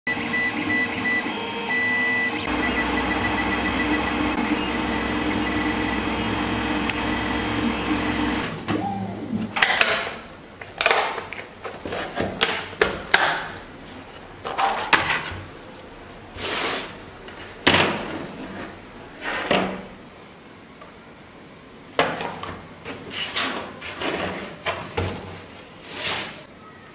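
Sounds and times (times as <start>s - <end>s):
stepper motor whines: 0.1s - 8.9s
printer mechanical hum: 0.1s - 9.6s.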